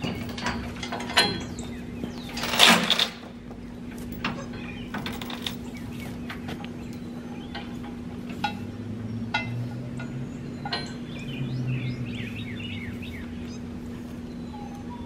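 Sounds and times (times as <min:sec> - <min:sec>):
birds chirping: 0:00.0 - 0:15.0
steady low hum: 0:00.0 - 0:15.0
metallic knocks with ring: 0:09.3 - 0:11.2.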